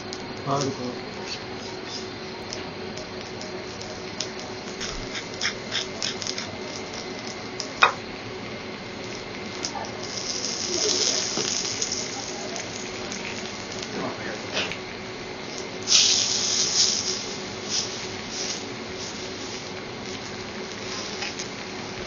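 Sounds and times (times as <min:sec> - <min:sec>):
vegetables sizzling on griddle: 0:09.0 - 0:14.7, 0:15.4 - 0:22.0.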